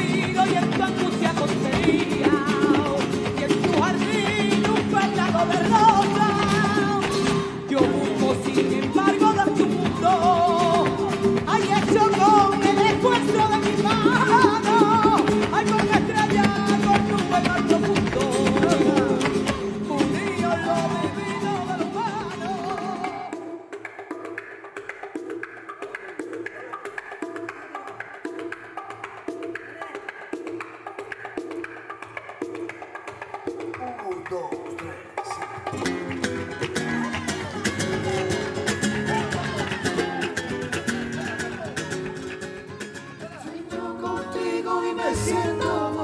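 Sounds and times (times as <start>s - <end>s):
strummed acoustic guitar: 0.0s - 23.3s, 35.7s - 46.0s
person singing ornamented line: 43.4s - 46.0s.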